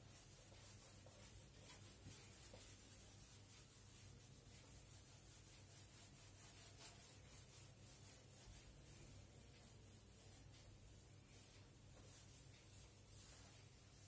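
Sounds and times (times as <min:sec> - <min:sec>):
whiteboard being wiped: 0:00.0 - 0:14.0.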